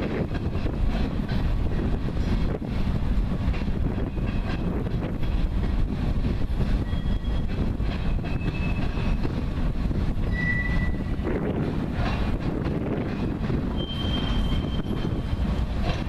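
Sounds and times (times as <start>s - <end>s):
freight train wheels rumbling on rail: 0.0s - 16.0s
high wheel squeals: 6.8s - 9.2s, 10.2s - 11.3s, 13.7s - 15.5s.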